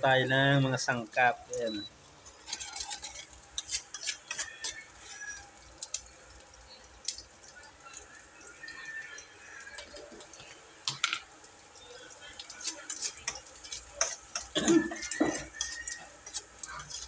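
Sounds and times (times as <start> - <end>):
food sizzling in oil: 0.0 - 17.0
utensil scraping metal pot: 2.3 - 6.0, 11.9 - 17.0.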